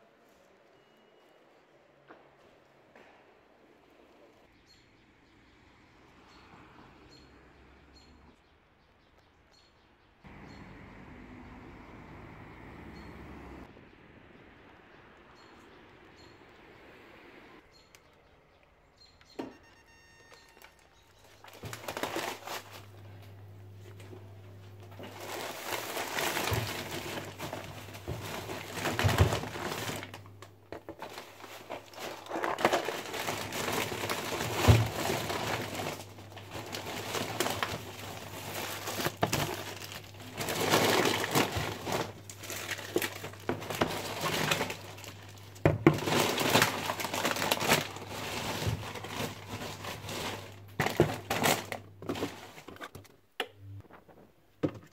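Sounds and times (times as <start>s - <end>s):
plastic bags crinkling: 19.9s - 53.0s.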